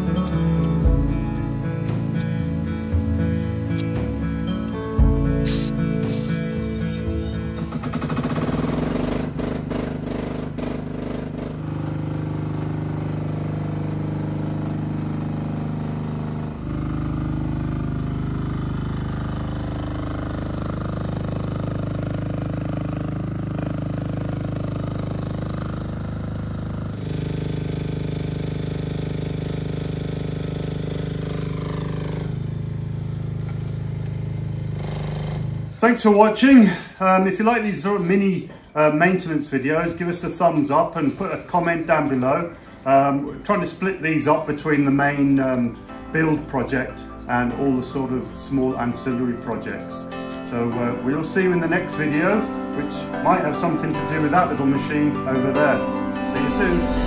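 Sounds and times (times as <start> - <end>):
small excavator engine running: 0.0 - 36.6, 39.6 - 57.0.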